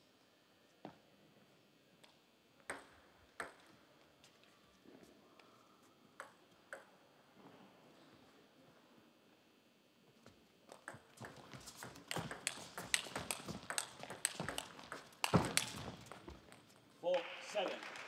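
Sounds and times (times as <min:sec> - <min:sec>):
table tennis ball bouncing: 0:02.7 - 0:03.7, 0:06.2 - 0:06.9, 0:10.7 - 0:16.6.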